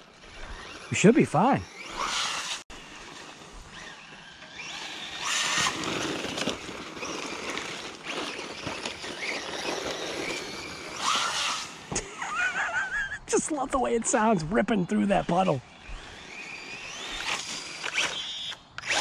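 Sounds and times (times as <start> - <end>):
tyre and drivetrain noise: 0.0 - 12.0
rc truck motor whining: 0.0 - 13.0, 14.1 - 19.0.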